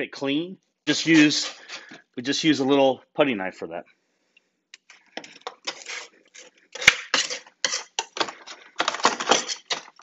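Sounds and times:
putty knife scraping: 0:01.0 - 0:02.0, 0:05.3 - 0:10.0.

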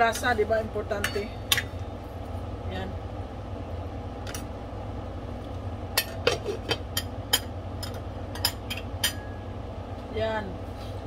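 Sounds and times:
steady low hum: 0:00.0 - 0:11.0
metal kitchenware clinking: 0:00.9 - 0:01.8, 0:06.0 - 0:09.4.

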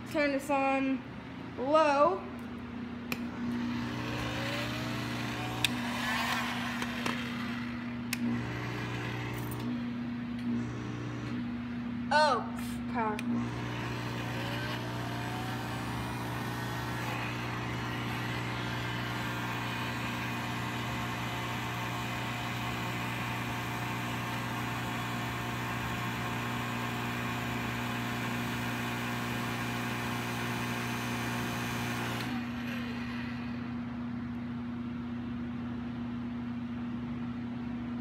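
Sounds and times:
motor winding down: 0:03.4 - 0:09.8, 0:13.2 - 0:33.7.

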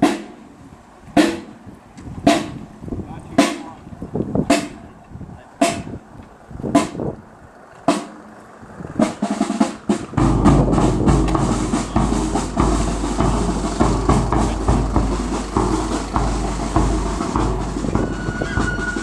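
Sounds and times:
slow vehicle engine: 0:00.0 - 0:19.0
sharp drum beats: 0:01.2 - 0:01.6, 0:02.2 - 0:02.6, 0:03.4 - 0:03.7, 0:04.4 - 0:04.8, 0:05.6 - 0:06.0, 0:07.9 - 0:08.2, 0:09.0 - 0:19.0
snare drum beats: 0:01.2 - 0:01.6, 0:02.3 - 0:02.6, 0:04.5 - 0:04.8, 0:05.6 - 0:05.9, 0:07.9 - 0:08.2, 0:09.1 - 0:19.0.

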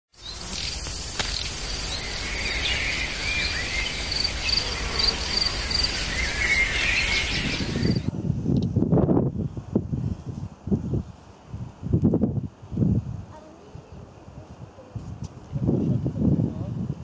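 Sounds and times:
birds chirping: 0:00.1 - 0:08.1
constant high hiss: 0:00.2 - 0:08.1
insects trilling: 0:00.2 - 0:08.1.

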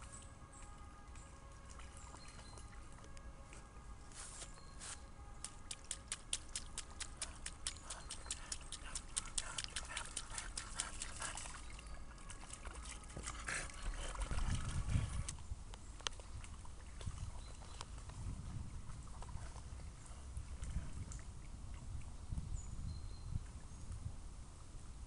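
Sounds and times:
dog paws splashing through puddle: 0:00.0 - 0:20.2.

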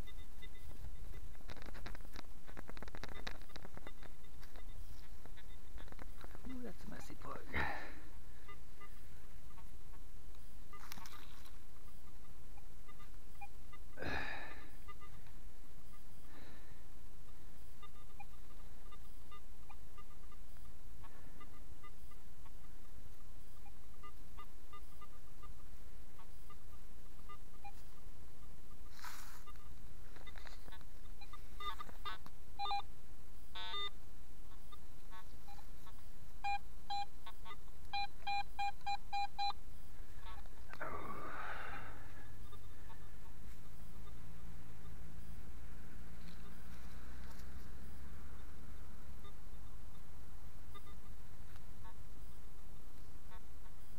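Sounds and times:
metal detector short beeps: 0:32.6 - 0:32.8, 0:36.4 - 0:37.1, 0:37.9 - 0:39.6.

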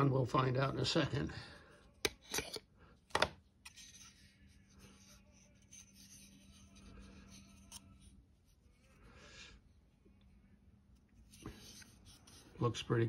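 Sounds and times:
hands rubbing wooden model: 0:03.7 - 0:08.8, 0:11.1 - 0:12.8.

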